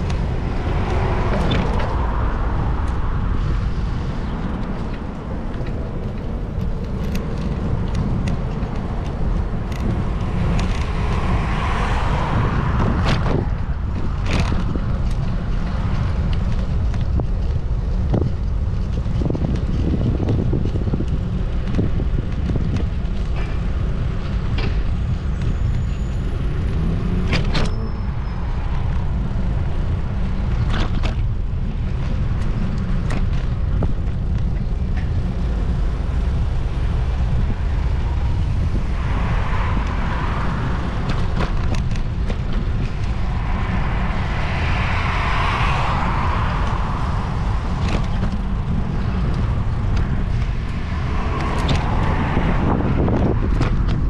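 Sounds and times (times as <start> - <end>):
vehicle road noise rumble: 0.0 - 54.0.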